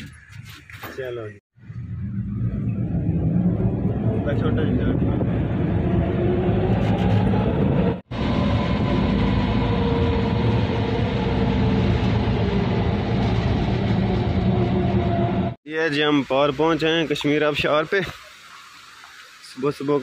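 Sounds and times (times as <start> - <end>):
cable car rumble and drone: 1.6 - 15.6.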